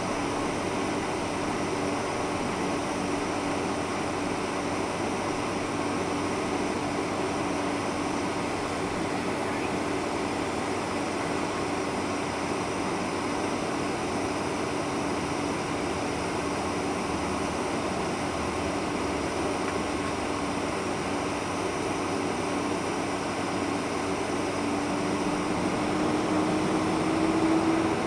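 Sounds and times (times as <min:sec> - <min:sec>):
air-conditioning hiss: 0:00.0 - 0:28.0
constant low hum: 0:00.0 - 0:28.0
jet engines at taxi power: 0:00.0 - 0:28.0.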